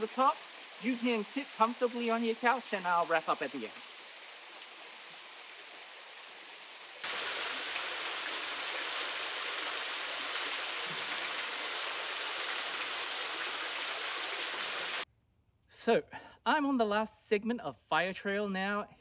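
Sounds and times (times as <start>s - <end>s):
waterfall rushing: 0.0s - 5.0s, 7.0s - 15.0s.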